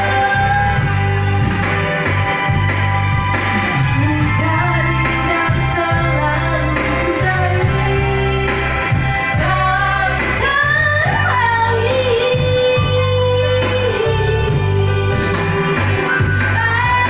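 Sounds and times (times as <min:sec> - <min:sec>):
woman singing into a microphone: 0:00.0 - 0:02.0, 0:03.7 - 0:17.0
amplified backing music with bass: 0:00.0 - 0:17.0.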